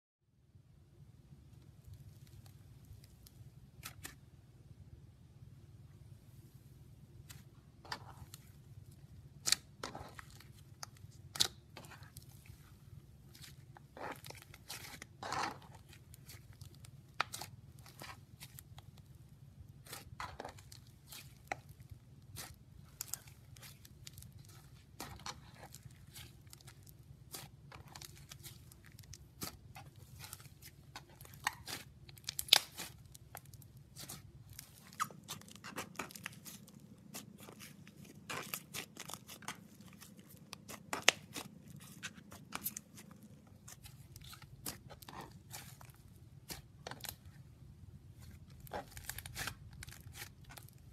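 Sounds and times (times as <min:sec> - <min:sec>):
slime crackling and popping: 0:09.4 - 0:12.7, 0:13.3 - 0:19.1, 0:19.8 - 0:47.4, 0:48.2 - 0:50.9.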